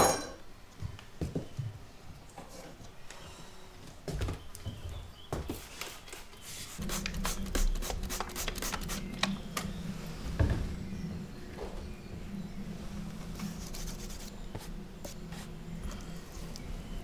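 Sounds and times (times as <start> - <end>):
spray bottle squirting water: 6.8 - 9.3
potter's wheel humming: 6.8 - 17.0.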